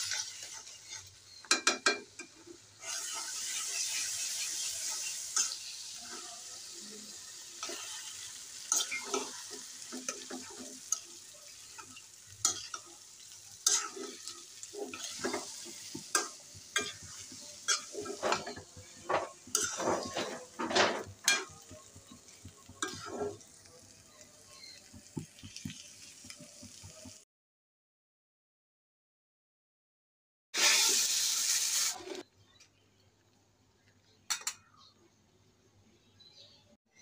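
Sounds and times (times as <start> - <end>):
metal spatula scraping a pan: 0.0 - 23.6
food sizzling: 0.0 - 27.2, 30.6 - 32.4.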